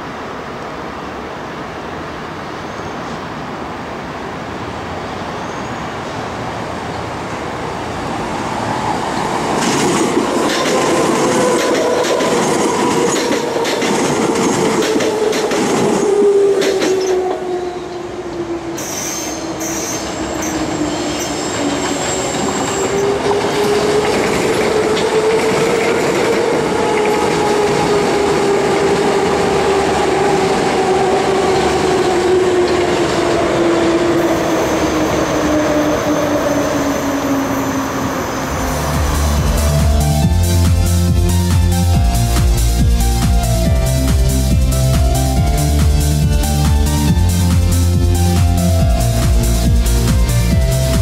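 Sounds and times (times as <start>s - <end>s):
train wheels rumbling on rail: 6.1s - 51.0s
train motor whine: 34.2s - 41.0s.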